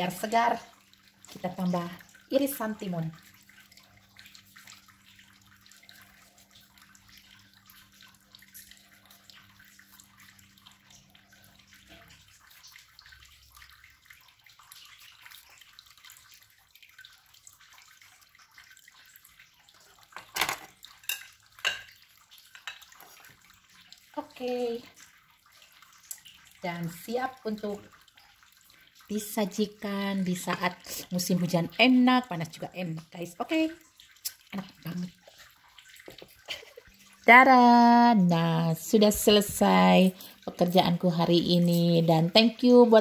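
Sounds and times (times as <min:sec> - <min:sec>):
faint steady hum: 0:00.0 - 0:43.0
kitchenware clinking: 0:20.2 - 0:23.2.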